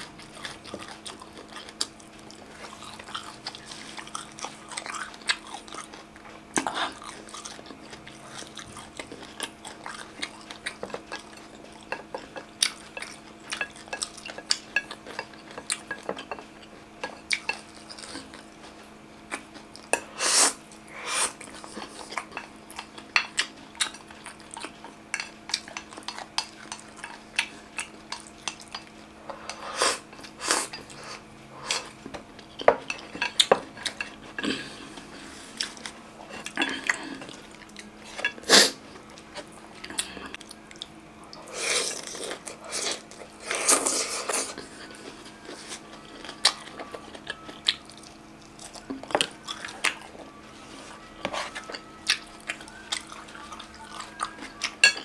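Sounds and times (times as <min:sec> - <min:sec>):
faint steady hum: 0:00.0 - 0:55.0
chopsticks clinking on dishes: 0:10.8 - 0:18.1, 0:52.5 - 0:55.0
chewing and biting: 0:51.4 - 0:55.0.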